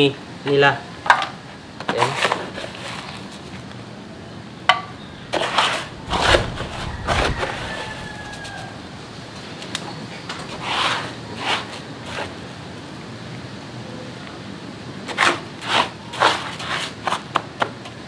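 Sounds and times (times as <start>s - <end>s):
scoop scraping cat litter: 5.3s - 6.6s, 15.1s - 17.3s.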